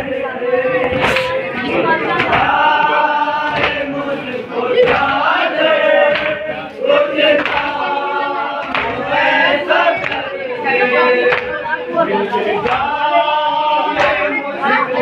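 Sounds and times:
men chanting in unison: 0:00.0 - 0:15.0
hands beating on chests: 0:02.1 - 0:02.8.

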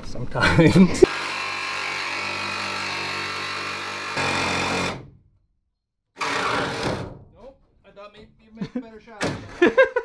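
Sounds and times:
power tool cutting sheet metal: 0:01.0 - 0:05.1, 0:06.2 - 0:07.1.

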